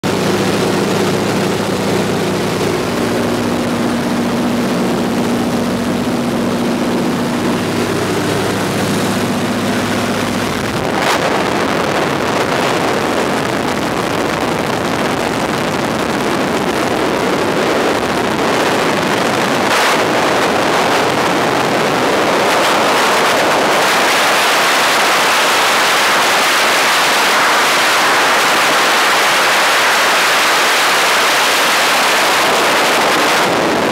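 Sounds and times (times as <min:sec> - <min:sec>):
propeller plane engine drone: 0:00.0 - 0:33.9
wind rushing on microphone: 0:00.1 - 0:33.9.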